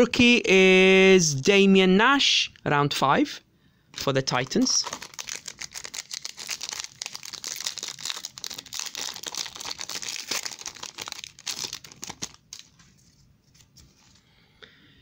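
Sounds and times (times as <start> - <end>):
foil wrapper crinkling: 4.4 - 14.2.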